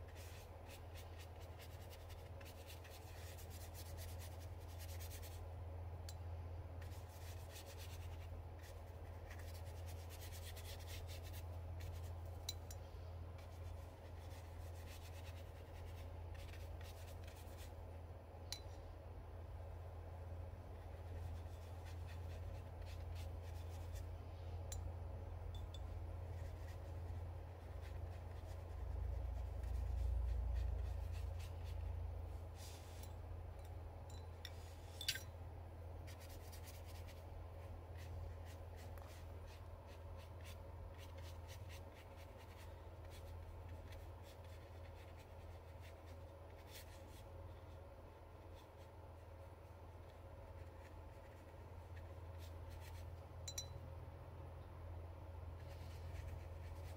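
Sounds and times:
paintbrush scratching on paper: 0.0 - 5.5, 6.8 - 12.4, 13.4 - 17.8, 20.7 - 24.1, 26.2 - 33.0, 36.0 - 53.2, 55.6 - 56.9.

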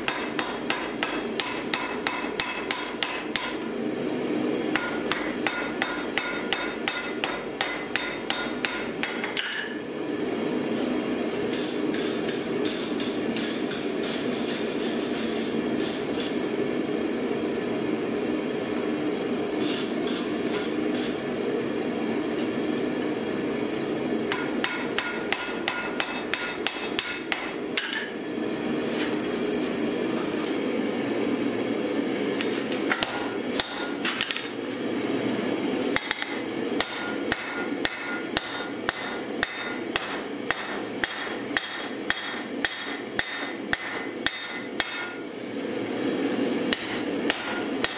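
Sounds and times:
hammer striking metal on anvil: 0.0 - 3.6, 4.7 - 9.8, 24.3 - 28.2, 33.0 - 34.3, 36.0 - 45.2, 46.7 - 47.9.

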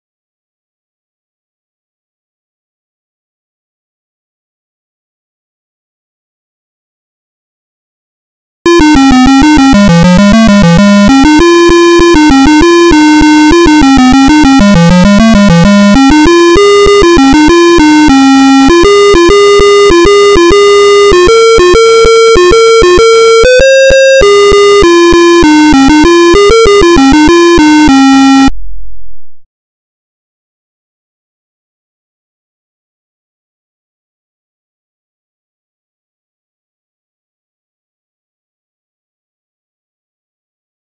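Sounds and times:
buzzy square-wave tune: 8.7 - 28.5.

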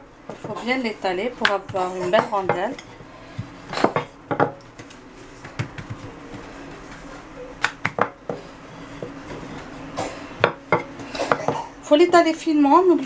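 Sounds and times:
rolling pin knocking on worktop: 3.4 - 4.6, 7.7 - 8.4.

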